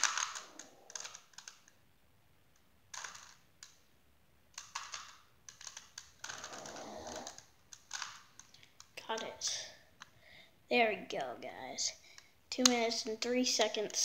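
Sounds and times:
puzzle cube clicking as turned: 0.0 - 1.8, 2.5 - 3.9, 4.5 - 9.3.

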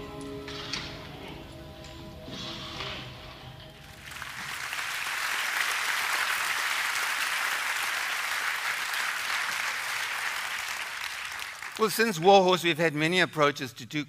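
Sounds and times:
audience applauding: 3.9 - 12.3.

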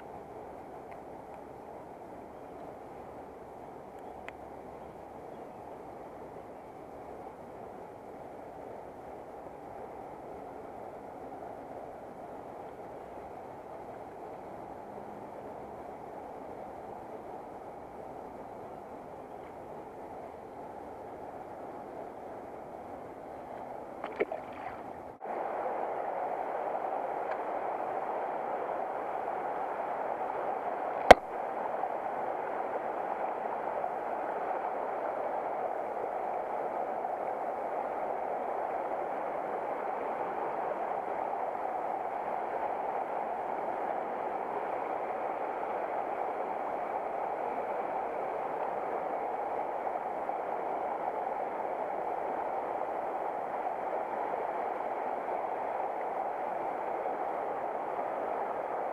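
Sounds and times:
creek water rushing: 23.7 - 25.6.

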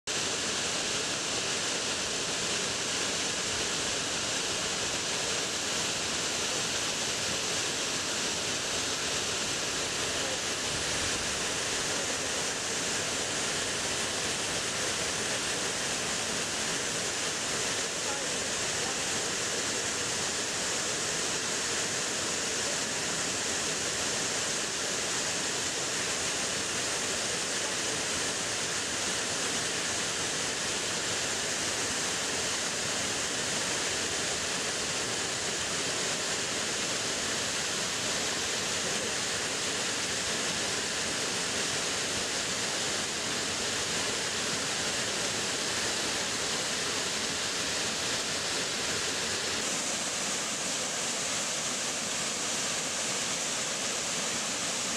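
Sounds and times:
waterfall rushing: 0.1 - 54.9.

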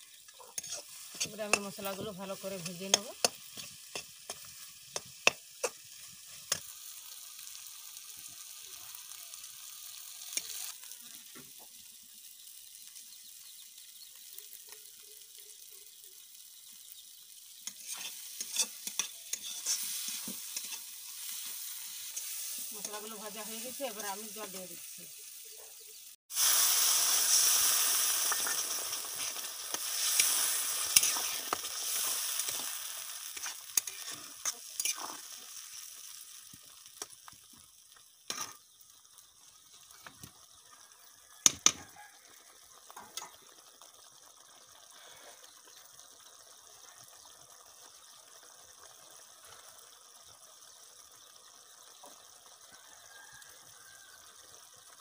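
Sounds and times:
faint simmer: 0.0 - 55.0
loud sizzle of water in pan: 0.0 - 55.0
metal ladle scraping pan: 0.2 - 2.1, 17.7 - 23.0, 28.2 - 32.7.

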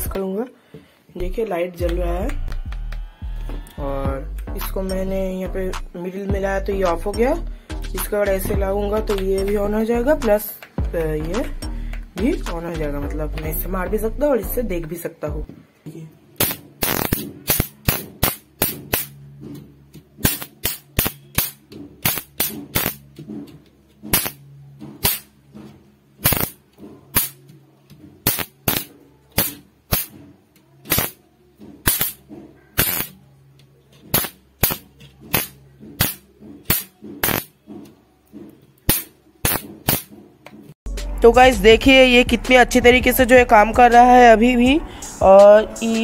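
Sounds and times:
electric snaps from wire grid: 16.4 - 19.2, 20.2 - 23.3, 24.0 - 24.4, 25.0 - 25.3, 26.2 - 27.5, 28.2 - 30.2, 30.8 - 31.2, 31.8 - 33.2, 34.0 - 37.5, 38.9 - 40.2.

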